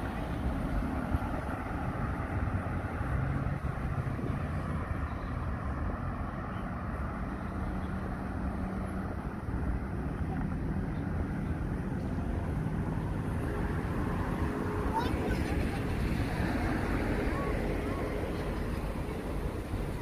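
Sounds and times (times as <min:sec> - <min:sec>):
faint engine tone: 0:00.0 - 0:20.0
street traffic hum: 0:00.0 - 0:20.0.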